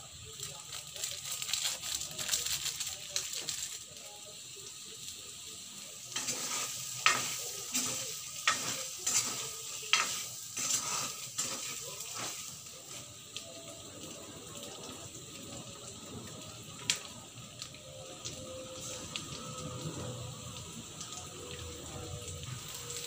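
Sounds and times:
chicken sizzling in a wok: 0.0s - 23.0s
spatula scraping a wok: 6.2s - 13.0s.

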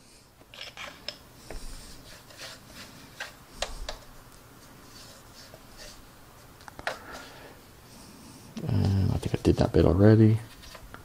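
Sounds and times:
paintbrush rubbing on plastic: 1.6s - 3.4s, 4.6s - 6.1s.

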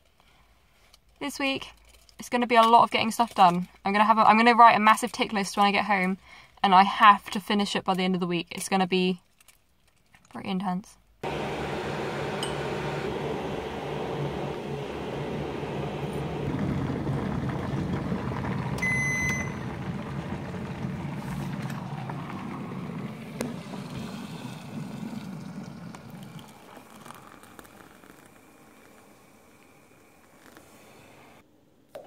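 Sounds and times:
kettle heating water rumble: 11.2s - 31.4s
short electronic beep: 18.8s - 19.6s
water poured into mug: 21.2s - 31.0s.

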